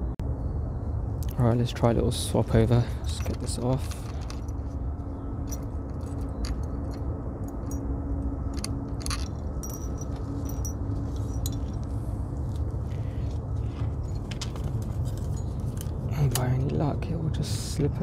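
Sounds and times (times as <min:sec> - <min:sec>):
steady low rumble: 0:00.0 - 0:18.0
small metal parts clinking: 0:02.6 - 0:04.8, 0:05.4 - 0:11.9, 0:14.0 - 0:16.5.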